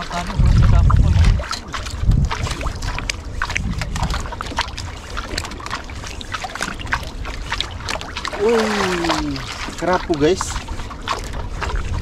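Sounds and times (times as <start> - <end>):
water sloshing around boat: 0.0 - 12.0
wind on microphone: 0.0 - 12.0.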